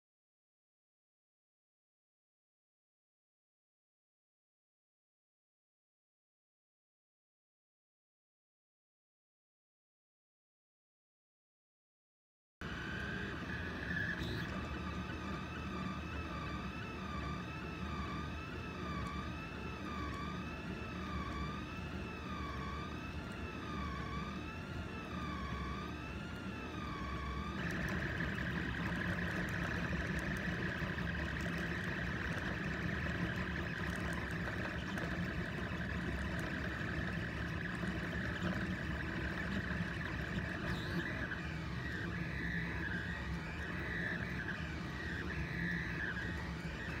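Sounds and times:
stepper motors whining: 12.6s - 47.0s.

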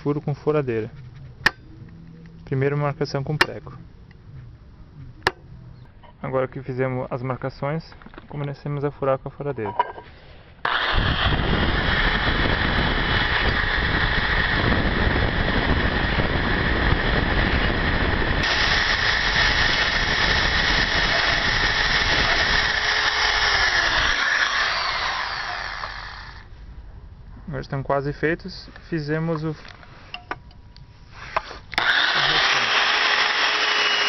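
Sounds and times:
electric drill running: 10.7s - 17.4s, 18.4s - 26.5s, 31.8s - 34.0s.

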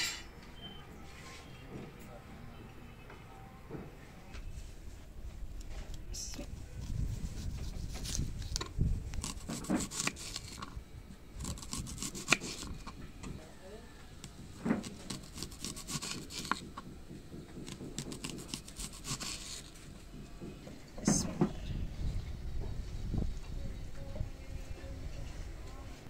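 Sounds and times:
knife slicing onion on board: 9.2s - 10.6s, 11.4s - 13.0s, 14.3s - 19.8s.

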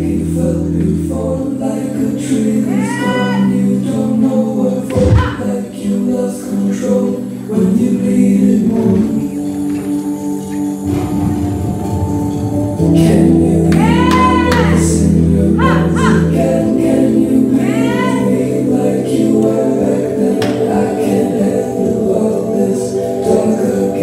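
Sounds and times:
song with singing: 0.0s - 24.0s
held bass notes: 3.4s - 6.2s, 7.7s - 24.0s.

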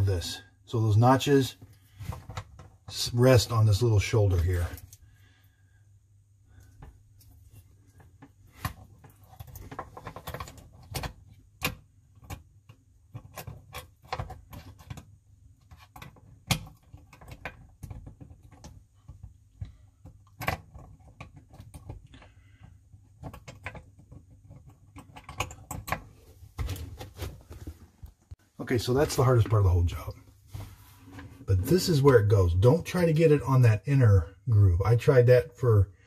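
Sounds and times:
small parts clicking and knocking: 6.6s - 26.9s.

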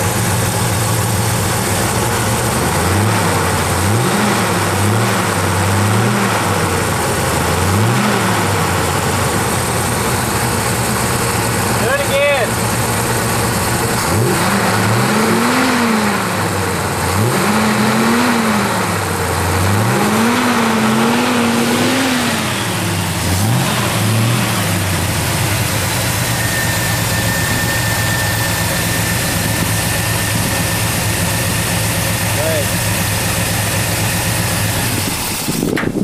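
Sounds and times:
pickup engine revving and idling: 0.0s - 36.0s
thin high whine: 26.0s - 31.6s.

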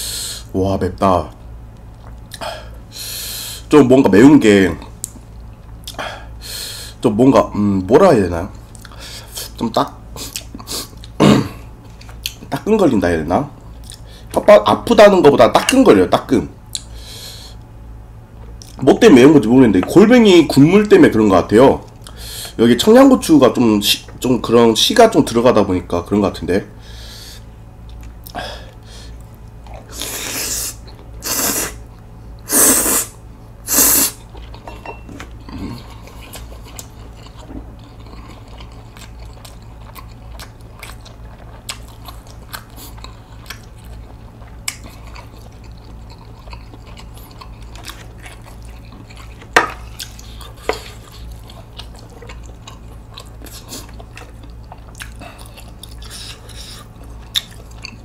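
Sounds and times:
person chewing: 10.1s - 11.2s, 11.8s - 12.5s, 13.6s - 14.4s, 16.7s - 16.9s, 27.8s - 58.0s
person slurping noodles: 29.9s - 31.8s, 32.5s - 34.2s.

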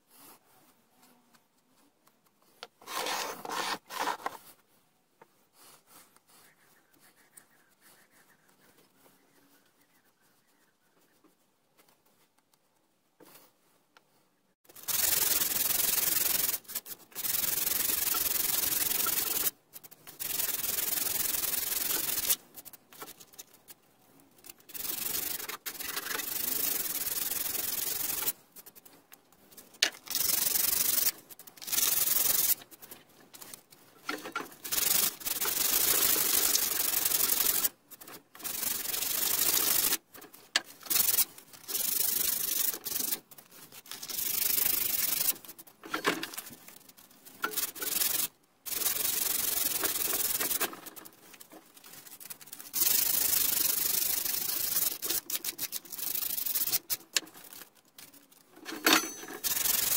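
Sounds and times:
sandpaper rubbing wood: 2.8s - 4.4s, 14.7s - 22.4s, 30.1s - 32.6s, 34.6s - 37.8s, 38.4s - 40.0s, 40.9s - 43.2s, 47.5s - 50.6s, 52.7s - 57.0s, 59.4s - 59.9s.

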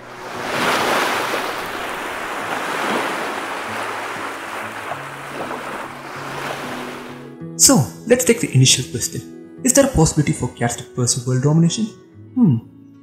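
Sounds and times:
ocean waves surging: 0.0s - 7.4s.

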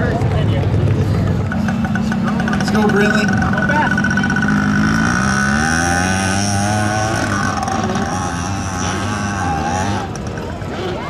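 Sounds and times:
motorcycle engine revving hard: 0.0s - 11.0s.

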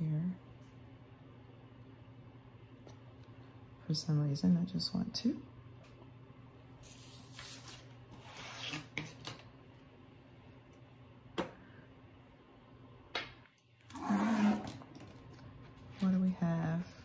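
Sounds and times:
paper rustling: 6.8s - 9.0s.

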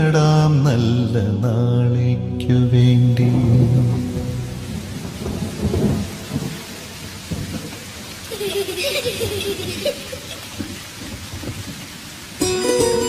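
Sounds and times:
rain falling: 2.5s - 13.0s
low rumble of thunder: 2.7s - 12.0s.

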